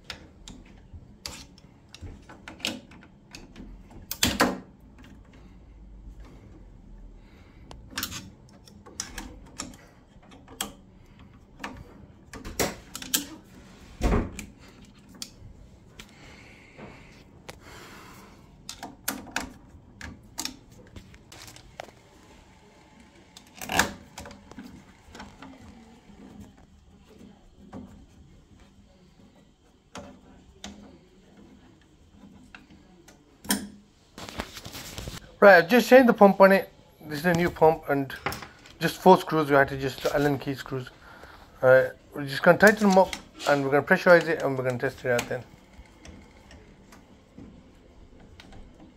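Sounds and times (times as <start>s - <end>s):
screwdriver clicking and scraping metal: 0.1s - 4.3s, 7.9s - 10.8s.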